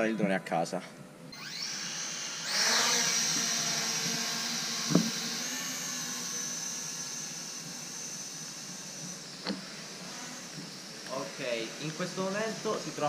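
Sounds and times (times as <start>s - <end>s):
drone propellers whining: 1.3s - 13.0s
brief knock: 4.9s - 5.1s.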